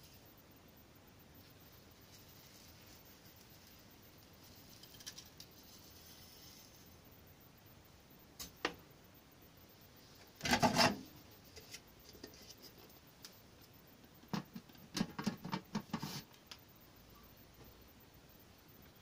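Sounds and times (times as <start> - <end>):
rustling: 1.4 - 7.0.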